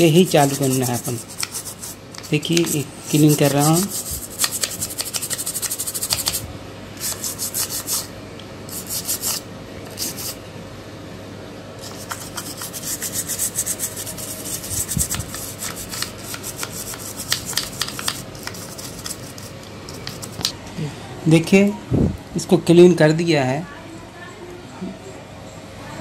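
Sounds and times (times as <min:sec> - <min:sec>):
brush scrubbing circuit board: 0:00.0 - 0:06.4, 0:07.0 - 0:08.1, 0:08.7 - 0:10.4, 0:11.8 - 0:20.5.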